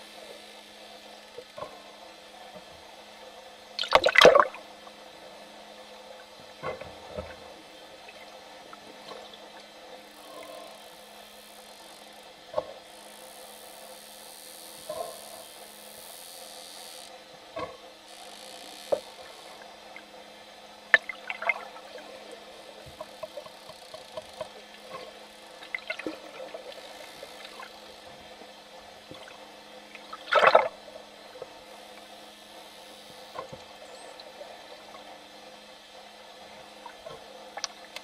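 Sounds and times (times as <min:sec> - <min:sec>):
low underwater hum: 0:00.0 - 0:38.0
underwater crackles: 0:20.9 - 0:32.2.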